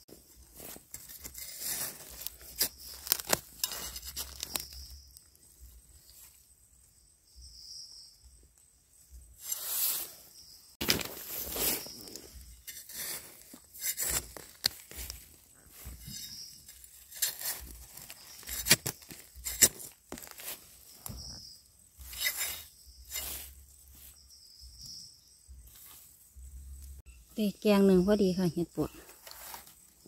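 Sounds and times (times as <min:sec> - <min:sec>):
dry leaves rustling: 0:00.2 - 0:05.1, 0:10.8 - 0:21.2, 0:22.1 - 0:24.2.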